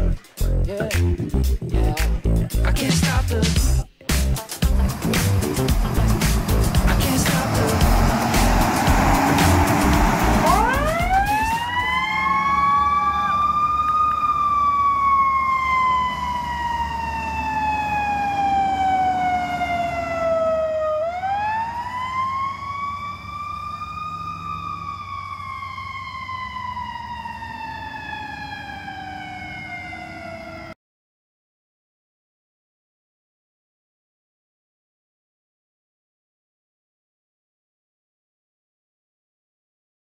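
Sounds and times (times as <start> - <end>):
ambulance siren wailing: 5.3 - 30.8.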